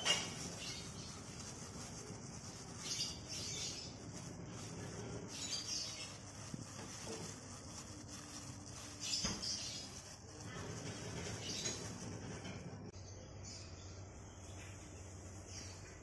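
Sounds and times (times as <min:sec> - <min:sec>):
plastic glove crinkling: 0:00.0 - 0:12.6
floury pieces rubbing: 0:00.0 - 0:12.9.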